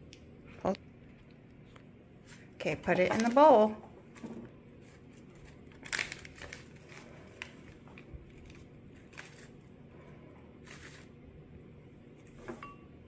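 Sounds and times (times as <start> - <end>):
paper pouch crinkling: 4.8 - 9.6, 10.6 - 11.1.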